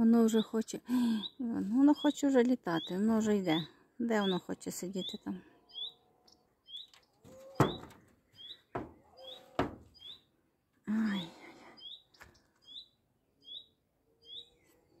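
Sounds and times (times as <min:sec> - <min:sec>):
small bird chirping: 0:00.3 - 0:10.3, 0:10.9 - 0:15.0
sharp knocks: 0:07.6 - 0:08.1, 0:08.7 - 0:10.0.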